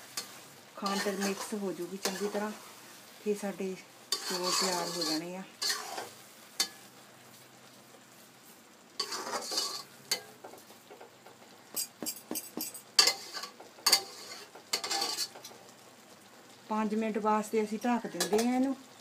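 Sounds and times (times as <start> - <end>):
spatula scraping a metal pot: 0.2 - 2.6, 4.1 - 6.8, 9.0 - 10.3, 11.7 - 15.5.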